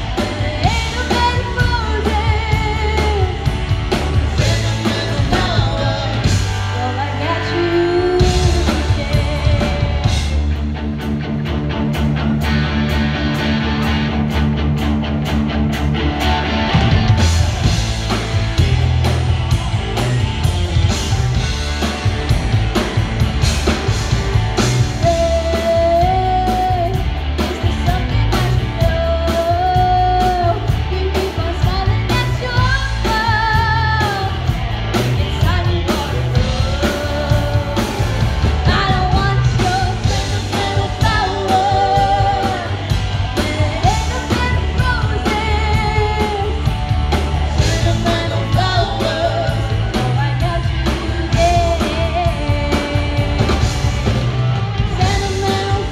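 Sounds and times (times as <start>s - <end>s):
woman singing: 0.0s - 10.4s, 24.8s - 54.0s, 54.8s - 55.9s
drum kit: 0.0s - 55.9s
electric guitars: 0.0s - 55.9s.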